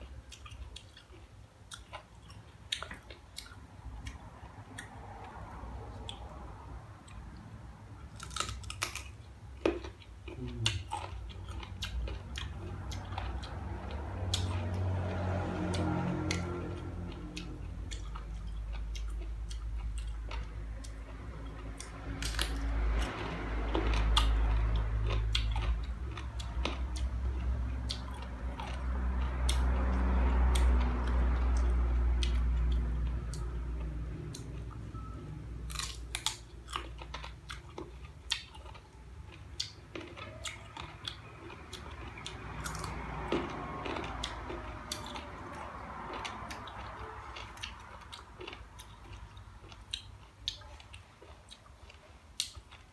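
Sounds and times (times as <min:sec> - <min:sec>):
wet chewing: 0:00.0 - 0:52.9
crunching bites of mango: 0:35.7 - 0:50.6.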